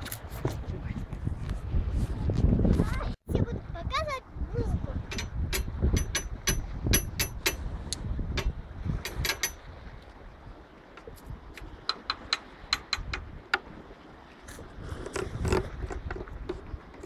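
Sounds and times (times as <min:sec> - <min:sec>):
wind rumbling on microphone: 0:00.0 - 0:17.0
taps on metal handrail: 0:05.1 - 0:07.6, 0:08.4 - 0:09.6, 0:11.6 - 0:13.7.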